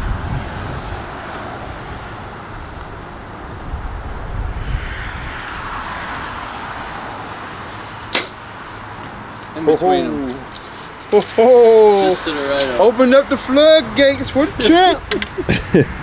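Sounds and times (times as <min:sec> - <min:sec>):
wind buffeting microphone: 0:00.0 - 0:07.5, 0:12.8 - 0:16.0.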